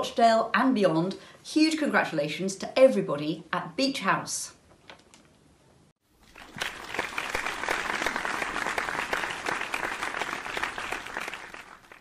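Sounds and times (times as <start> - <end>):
crowd applause: 6.3 - 12.0.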